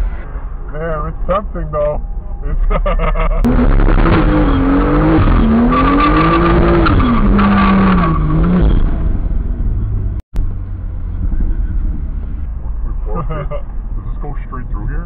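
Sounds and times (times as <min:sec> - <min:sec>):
car engine revving hard: 0:03.4 - 0:10.2.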